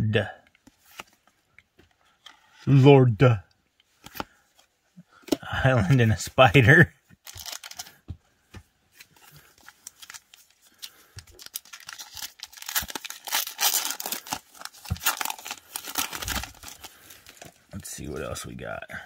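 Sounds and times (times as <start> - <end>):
foil wrapper tearing and crinkling: 7.2 - 8.0, 9.7 - 17.6.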